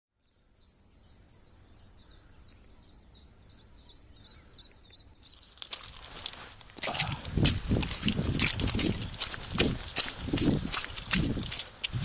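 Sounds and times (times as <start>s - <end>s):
songbird chirping: 0.1s - 7.2s
rustling hiss: 5.3s - 8.2s.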